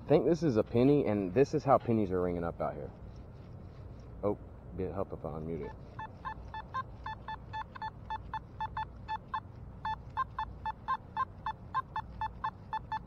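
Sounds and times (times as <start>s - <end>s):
metal detector beeps: 5.6s - 13.0s.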